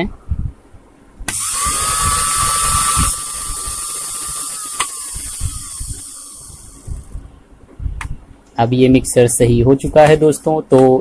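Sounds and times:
mixer grinder motor whining: 0:01.3 - 0:07.1.

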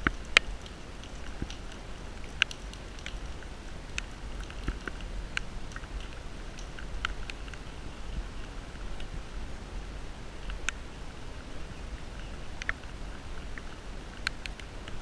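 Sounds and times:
raindrops tapping: 0:00.0 - 0:09.2
wind rumble on microphone: 0:00.0 - 0:15.0.

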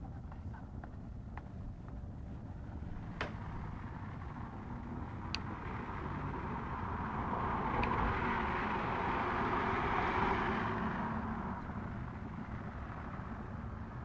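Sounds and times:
low background rumble: 0:00.0 - 0:14.0
vehicle passing: 0:02.8 - 0:14.0.

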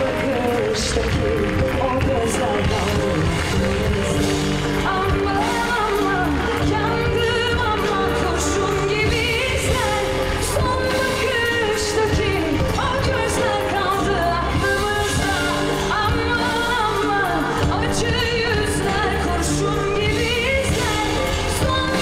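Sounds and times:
live band accompaniment: 0:00.0 - 0:22.0
low bass notes: 0:00.0 - 0:22.0
woman singing into a microphone: 0:00.0 - 0:22.0.

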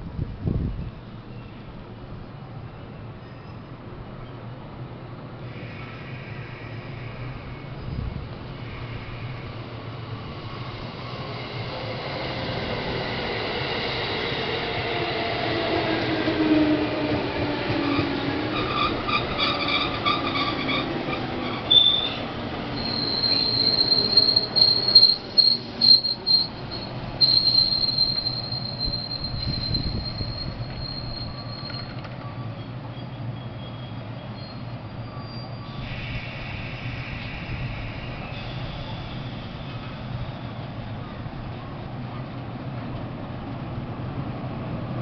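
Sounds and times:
loud high brake squeal: 0:05.5 - 0:09.6, 0:17.8 - 0:40.9.

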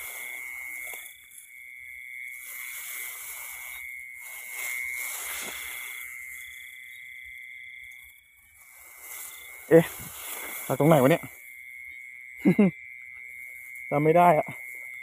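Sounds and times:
rice stalks rustling: 0:00.0 - 0:07.1, 0:07.8 - 0:12.6
insects trilling: 0:00.0 - 0:15.0.

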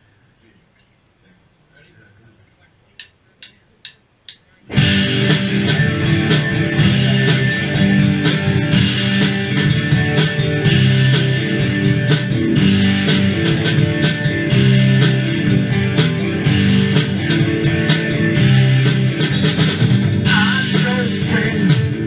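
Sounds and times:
drumstick count-in clicks: 0:03.0 - 0:04.5
rock band playing: 0:04.7 - 0:22.0.

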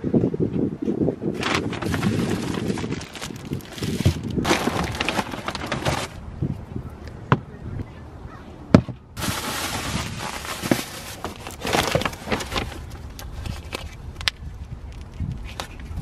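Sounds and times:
plastic and paper bags rustling: 0:01.3 - 0:06.2, 0:09.2 - 0:14.0.

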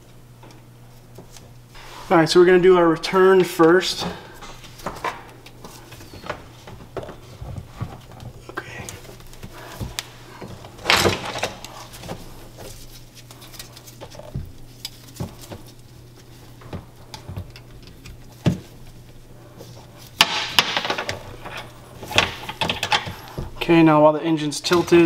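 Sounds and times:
steady low hum: 0:00.0 - 0:25.0
rustling scrapes: 0:01.7 - 0:02.3.

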